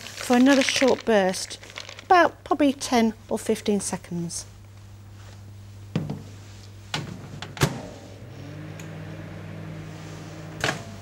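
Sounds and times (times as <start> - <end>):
microwave oven humming: 6.9 - 11.0.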